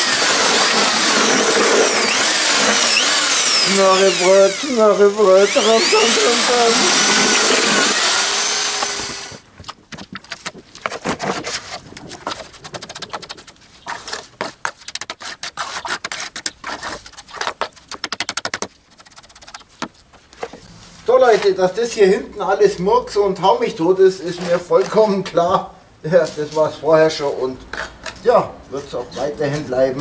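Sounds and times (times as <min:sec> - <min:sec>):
trowel scraping wet concrete: 0:00.0 - 0:09.3, 0:10.3 - 0:19.8
electric drill mixing concrete: 0:00.0 - 0:09.4.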